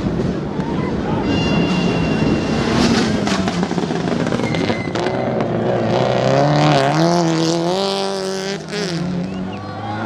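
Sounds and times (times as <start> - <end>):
rally car engine high revs: 2.2 - 9.5.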